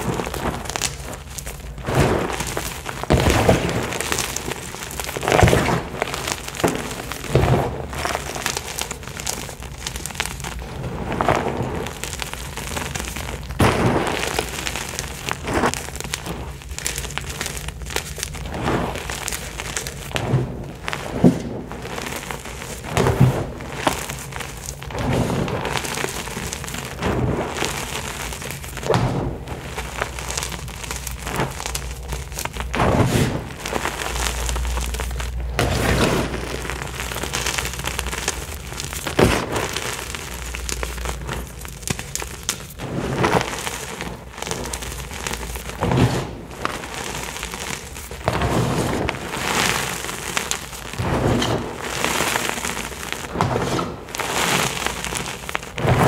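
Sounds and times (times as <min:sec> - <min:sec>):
chalk crunching: 0:00.0 - 0:56.0
hands crumbling powder blocks: 0:00.0 - 0:56.0.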